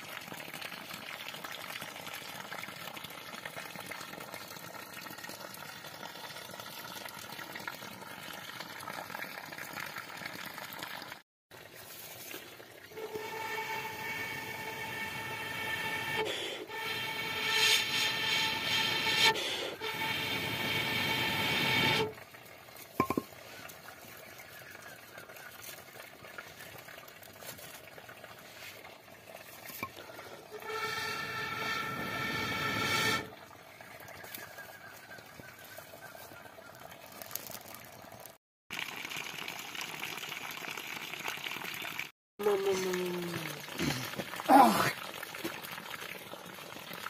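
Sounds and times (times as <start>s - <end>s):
horn-like note from blow pipe: 13.0s - 22.1s, 30.5s - 33.3s.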